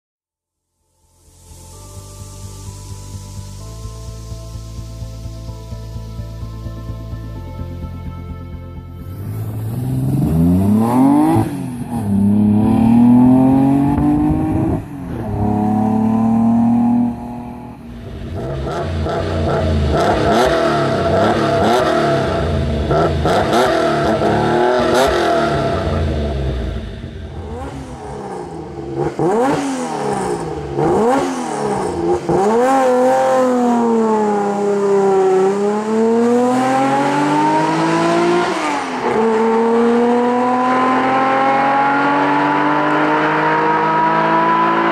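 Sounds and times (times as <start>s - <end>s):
car engines accelerating and revving: 9.0s - 44.9s.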